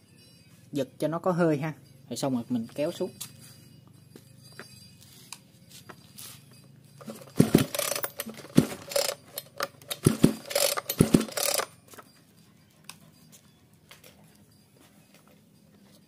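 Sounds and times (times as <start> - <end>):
engine turning over thumps: 7.0 - 9.1, 10.0 - 11.4
recoil starter cord rasping: 7.0 - 11.7.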